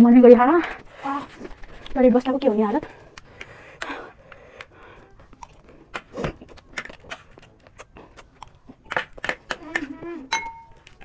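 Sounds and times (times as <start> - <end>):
person chewing crunchy food: 3.0 - 11.0.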